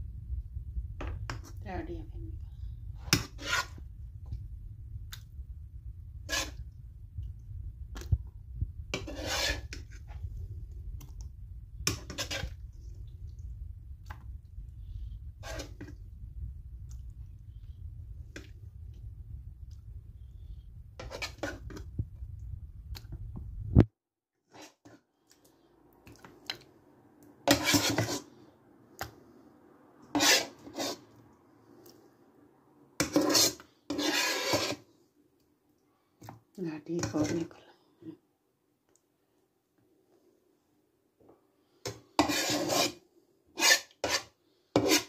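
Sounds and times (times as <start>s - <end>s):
metal spoon scraping plastic container: 3.0s - 3.8s, 6.3s - 6.6s, 8.9s - 10.2s, 11.9s - 12.6s, 15.4s - 15.9s, 21.0s - 21.8s, 27.5s - 28.3s, 30.1s - 31.0s, 33.0s - 34.9s, 41.9s - 43.0s, 43.6s - 45.0s.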